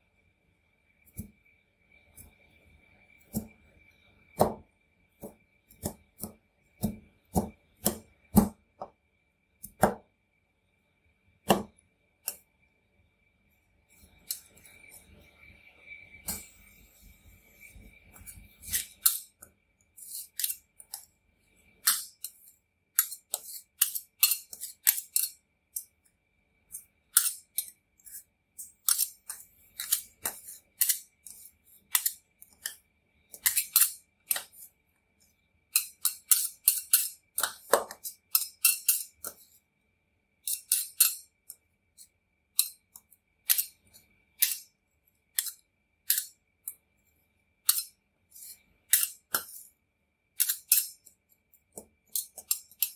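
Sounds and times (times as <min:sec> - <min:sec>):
faint steady high tone: 0:00.0 - 0:48.7
metal spatulas clacking and scraping: 0:18.2 - 0:19.3, 0:20.0 - 0:21.1, 0:21.8 - 0:25.4, 0:27.2 - 0:28.2, 0:28.8 - 0:34.5, 0:35.7 - 0:39.4, 0:40.4 - 0:41.3, 0:42.6 - 0:42.8, 0:43.5 - 0:43.8, 0:44.4 - 0:44.7, 0:45.4 - 0:46.3, 0:47.7 - 0:49.7, 0:50.4 - 0:51.1, 0:52.1 - 0:52.9.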